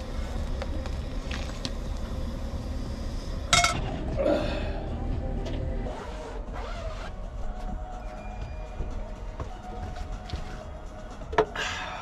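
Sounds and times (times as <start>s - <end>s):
steady low rumble: 0.0s - 6.5s
sharp metal clank: 3.5s - 3.8s.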